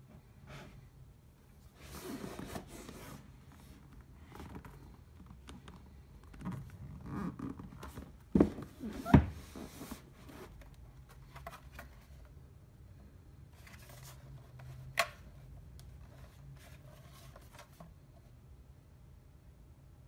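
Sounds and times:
box rustling and tapping: 7.8 - 9.6.

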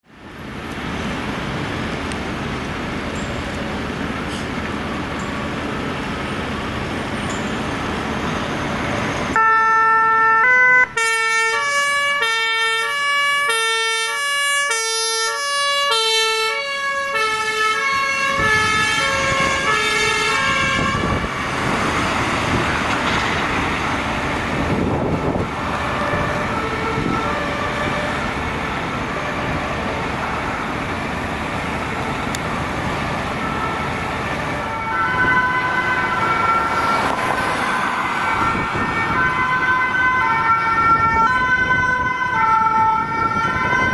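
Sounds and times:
traffic noise: 0.0 - 43.9
two-tone siren: 9.3 - 21.8, 25.2 - 28.3, 33.3 - 43.9
second emergency siren: 9.4 - 21.6, 33.4 - 43.9.

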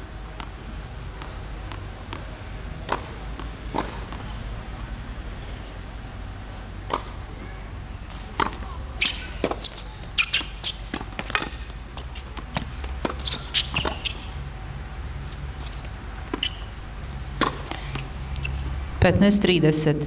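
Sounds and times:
tennis ball bouncing on hard court: 0.4 - 4.3, 6.8 - 7.2, 8.1 - 14.4, 15.6 - 18.1
tennis ball struck by rackets: 0.4 - 4.4, 6.8 - 7.3, 8.1 - 14.3, 15.6 - 18.1
low steady rumble: 10.8 - 20.0.

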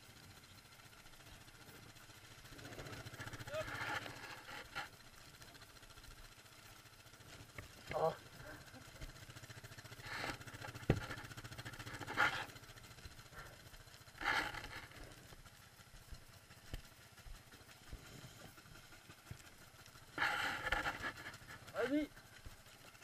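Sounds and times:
quad engine idling: 0.0 - 23.0.

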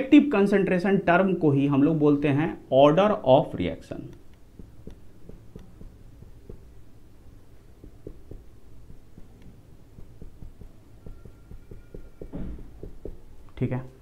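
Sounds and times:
steady low hum: 2.5 - 14.0
marker pen tapping on whiteboard: 4.0 - 13.6.

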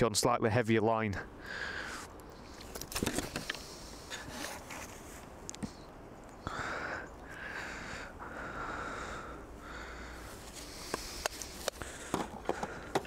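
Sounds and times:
person breathing puffs: 6.5 - 13.0.

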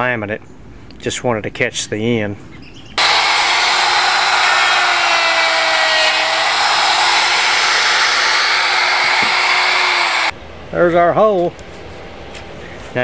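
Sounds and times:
router cutting laminate: 3.0 - 10.3
router motor whine: 3.0 - 10.3.

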